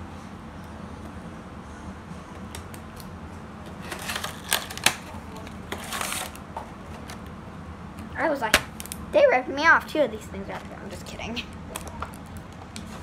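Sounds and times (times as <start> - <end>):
low room hum: 0.0 - 13.0
plastic packaging crinkling: 3.8 - 7.2.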